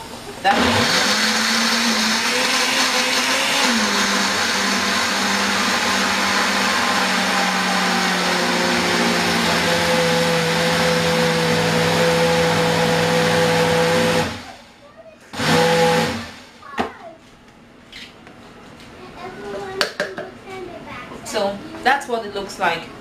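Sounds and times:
blender motor grinding: 0:00.4 - 0:14.5, 0:15.3 - 0:16.4.

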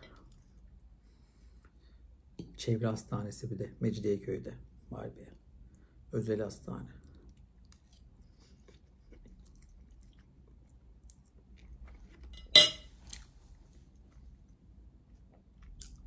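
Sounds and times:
chewing: 0:07.0 - 0:16.0
metal fork clinking on a plate: 0:12.4 - 0:12.9.

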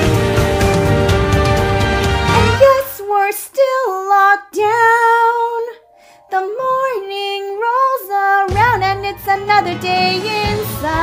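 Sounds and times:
woman singing: 0:02.4 - 0:11.0.

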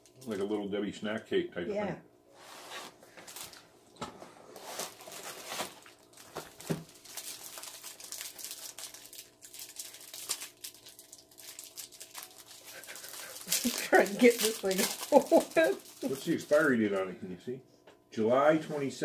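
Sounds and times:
plastic wrapper crinkling: 0:03.2 - 0:03.6, 0:04.6 - 0:17.0.

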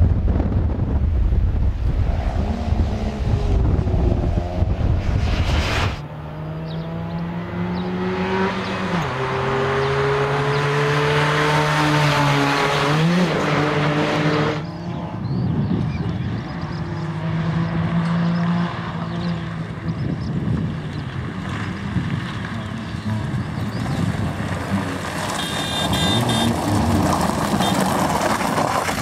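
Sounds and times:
wind buffeting microphone: 0:00.0 - 0:06.0, 0:14.9 - 0:16.9, 0:19.6 - 0:25.2
rally car engine revving: 0:01.9 - 0:15.1, 0:16.1 - 0:20.0, 0:20.6 - 0:29.0.

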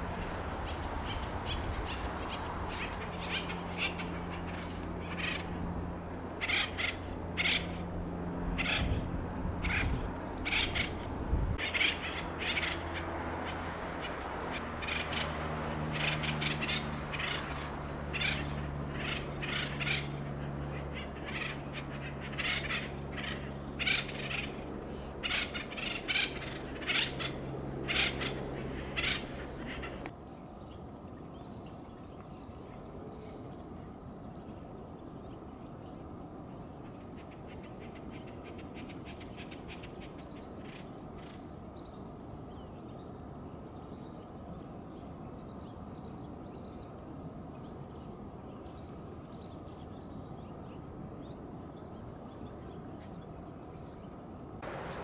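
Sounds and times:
woodpeckers calling harshly: 0:00.0 - 0:07.9, 0:08.5 - 0:30.1
steady low hum: 0:00.0 - 0:30.1, 0:54.6 - 0:55.0.

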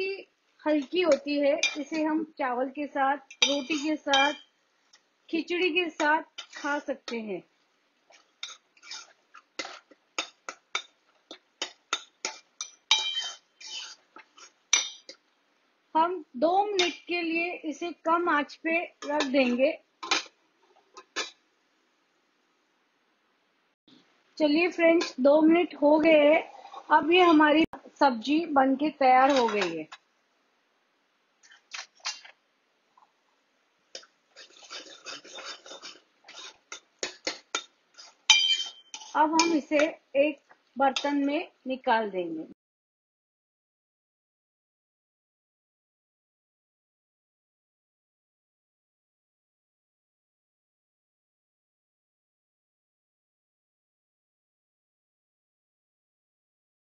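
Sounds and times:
metal spoon scraping pot: 0:00.8 - 0:02.1, 0:03.3 - 0:04.5, 0:06.0 - 0:07.2, 0:08.1 - 0:15.2, 0:16.7 - 0:17.1, 0:26.1 - 0:27.4, 0:29.2 - 0:29.8, 0:34.0 - 0:39.9, 0:40.9 - 0:41.3
spoon clicking on pot: 0:01.1 - 0:01.9, 0:03.3 - 0:04.5, 0:09.6 - 0:13.4, 0:14.7 - 0:15.2, 0:16.8 - 0:17.1, 0:38.3 - 0:39.7.

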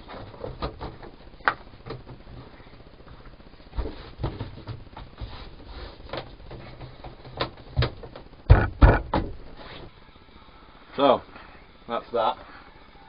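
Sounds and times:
foam mat tiles knocking and thumping: 0:03.7 - 0:09.4.

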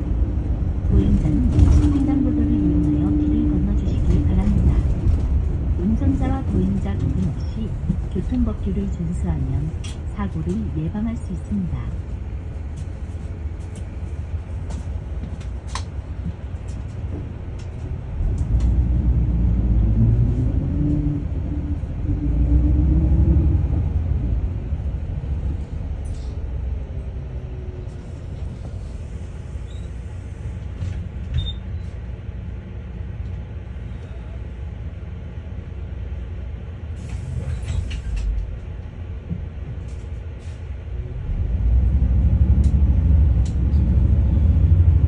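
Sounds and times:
bus engine rumbling: 0:00.0 - 0:45.0.

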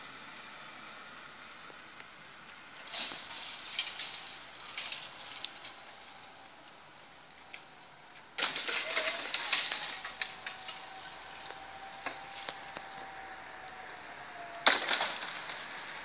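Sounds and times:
barrier motor whine: 0:08.8 - 0:16.0.

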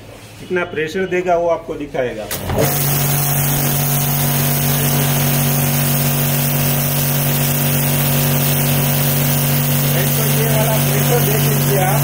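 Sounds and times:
pressure washer humming and hissing: 0:02.3 - 0:12.0.

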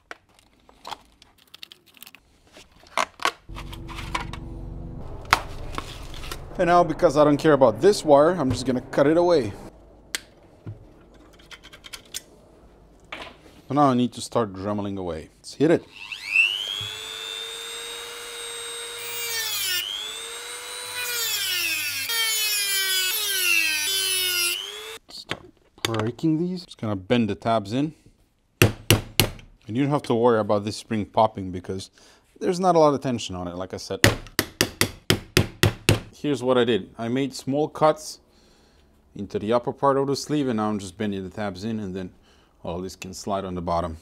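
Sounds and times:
steady low hum: 0:03.5 - 0:13.7
rotary tool whining and cutting: 0:15.9 - 0:25.0.

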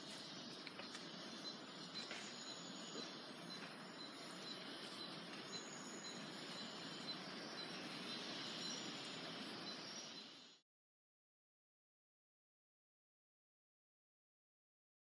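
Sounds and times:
hiss of insects: 0:00.0 - 0:10.6
soft high chirp: 0:00.0 - 0:10.6.

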